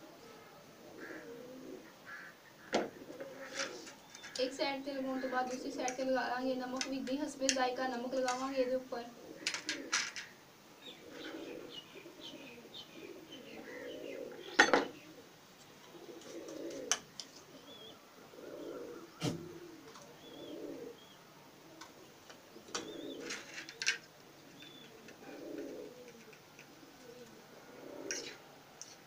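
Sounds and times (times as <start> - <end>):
dove cooing: 0.0 - 29.0
small bird chirping: 10.8 - 15.2, 17.2 - 21.2, 22.0 - 23.8, 24.4 - 27.2
cutlery clinking on plates: 14.6 - 14.9.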